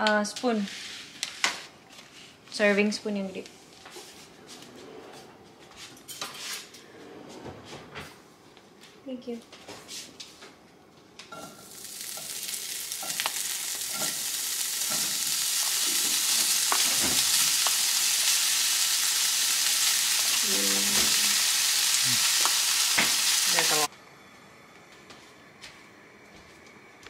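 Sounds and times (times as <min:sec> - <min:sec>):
chicken sizzling in frying pan: 0:11.5 - 0:23.9.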